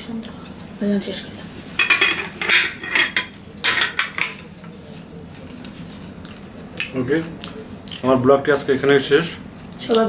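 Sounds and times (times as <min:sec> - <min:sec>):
ceramic dishes clinking and scraping: 0:01.8 - 0:04.5.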